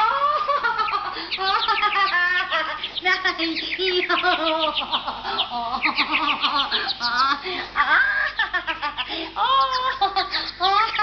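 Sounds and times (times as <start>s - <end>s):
woman shrieking and squealing: 6.6s - 8.5s, 9.4s - 11.0s.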